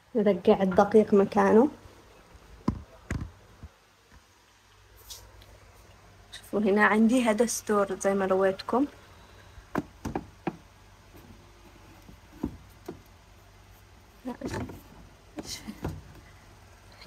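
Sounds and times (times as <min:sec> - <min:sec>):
cupboard items knocking and clicking: 0:09.7 - 0:10.7, 0:12.0 - 0:13.1, 0:14.4 - 0:15.0, 0:15.7 - 0:16.2.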